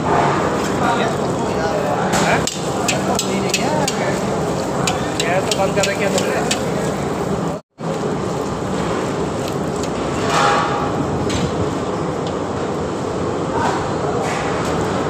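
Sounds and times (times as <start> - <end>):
kitchen noise: 0.0 - 11.6
oil frying: 0.1 - 12.8.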